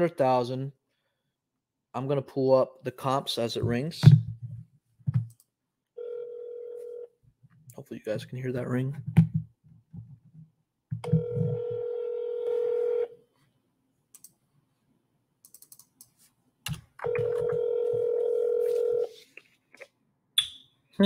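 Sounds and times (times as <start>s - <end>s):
telephone ringback tone: 6.0s - 7.1s, 11.1s - 13.1s, 17.0s - 19.1s.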